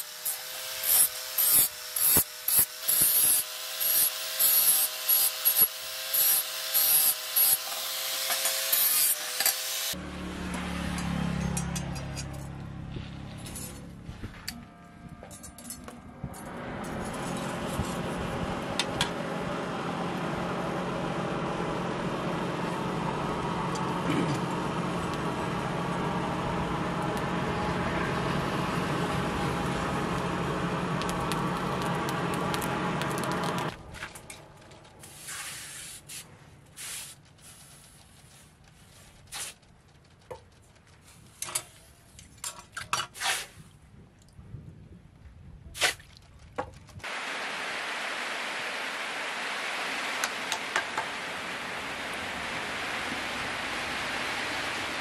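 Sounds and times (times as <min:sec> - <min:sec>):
forge blower rushing: 0:16.0 - 0:33.9, 0:47.1 - 0:55.0.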